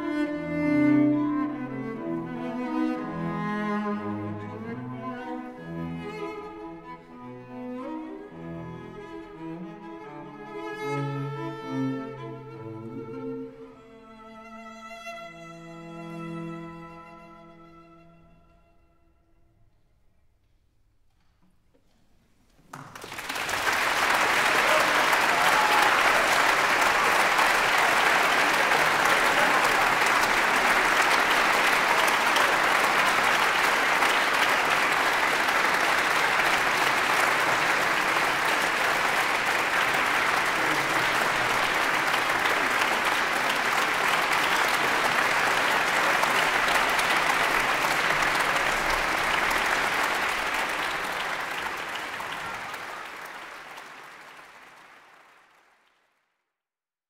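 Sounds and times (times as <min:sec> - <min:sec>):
audience applauding: 0:22.7 - 0:56.3.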